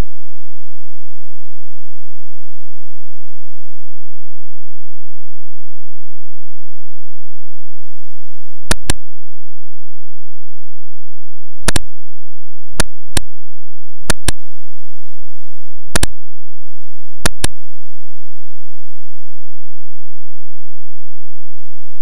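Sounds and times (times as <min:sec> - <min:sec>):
computer mouse button clicking: 0:08.7 - 0:09.0, 0:11.7 - 0:11.9, 0:14.1 - 0:14.4, 0:17.2 - 0:17.6.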